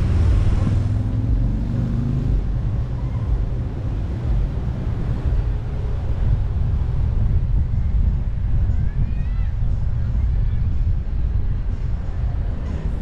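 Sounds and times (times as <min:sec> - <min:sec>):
faint car engine: 0:00.0 - 0:09.0
wind and road noise rumble: 0:00.0 - 0:13.0.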